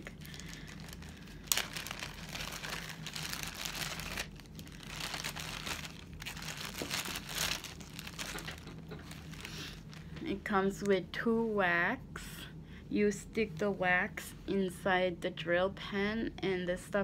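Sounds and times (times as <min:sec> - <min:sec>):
packaging bag crinkling: 0:00.0 - 0:10.2.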